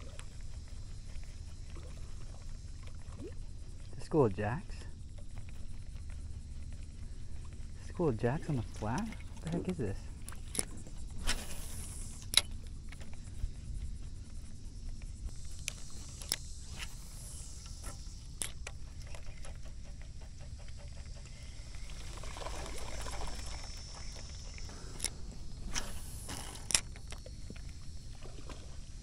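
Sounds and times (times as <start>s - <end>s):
fishing reel ticking: 7.8s - 13.2s, 15.2s - 19.7s, 22.1s - 28.0s
rod and reel handling clicks: 8.4s - 13.2s, 15.3s - 19.6s, 24.5s - 27.9s.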